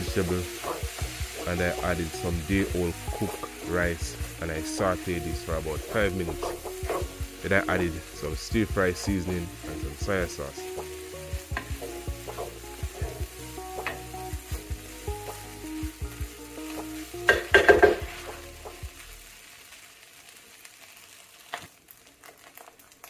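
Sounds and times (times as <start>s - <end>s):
spatula scraping a pan: 0.0s - 1.5s, 5.8s - 7.2s, 10.7s - 14.0s
rice sizzling in a pan: 0.0s - 23.0s.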